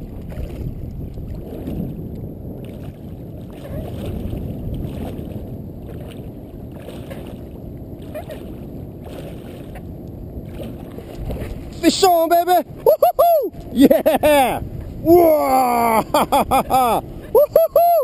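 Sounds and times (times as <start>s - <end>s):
water lapping against float tube: 0.0s - 12.9s
wind rumbling on microphone: 0.0s - 18.0s.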